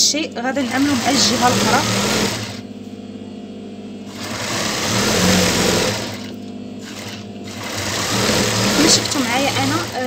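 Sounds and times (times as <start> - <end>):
sewing machine stitching: 0.6 - 2.6, 4.1 - 10.0.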